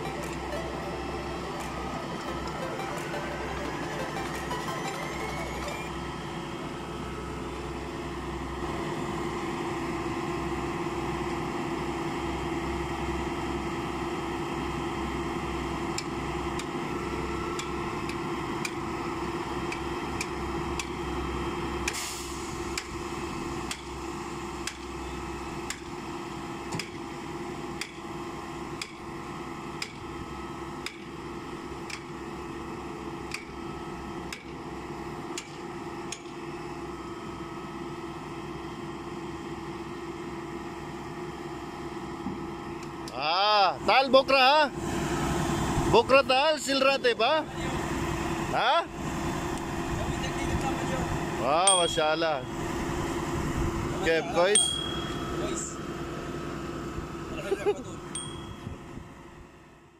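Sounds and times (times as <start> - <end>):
concrete pump droning: 0.0 - 43.9
short hiss: 21.9 - 22.6.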